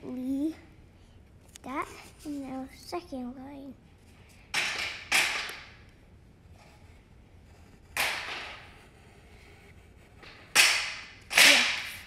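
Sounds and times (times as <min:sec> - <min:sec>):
pencil scratching on paper: 0:06.5 - 0:08.0, 0:08.6 - 0:10.2.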